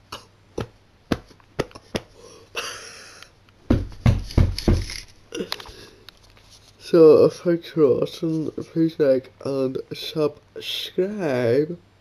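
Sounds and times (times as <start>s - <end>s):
heavy bumps on microphone: 3.7s - 5.0s.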